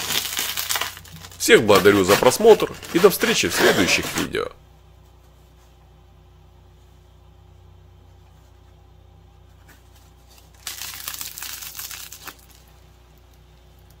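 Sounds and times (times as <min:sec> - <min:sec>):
bread crust crackling: 0:00.0 - 0:04.4, 0:09.6 - 0:14.0
low steady hum: 0:00.0 - 0:14.0.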